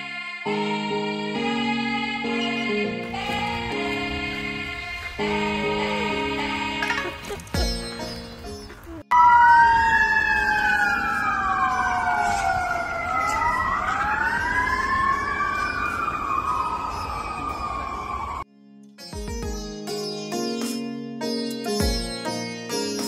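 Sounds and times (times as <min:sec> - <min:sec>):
sirens wailing: 0:09.1 - 0:18.5.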